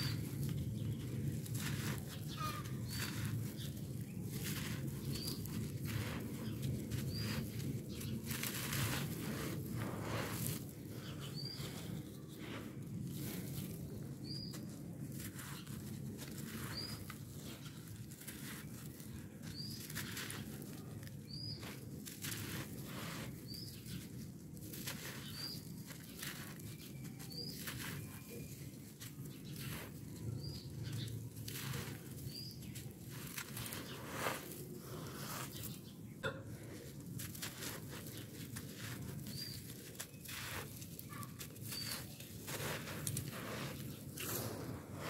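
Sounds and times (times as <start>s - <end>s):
bird chirping: 0.0s - 9.1s, 10.9s - 12.6s, 13.2s - 14.8s, 16.5s - 21.7s, 25.1s - 34.1s, 38.0s - 44.5s
hands crumbling dry dirt: 0.0s - 45.0s.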